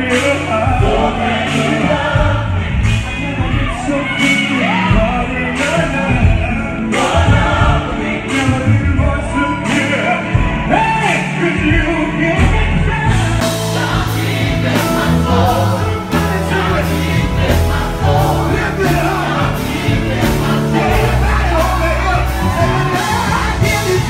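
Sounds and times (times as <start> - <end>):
choir singing gospel: 0.0 - 24.0
backing beat with bass line: 12.4 - 24.0.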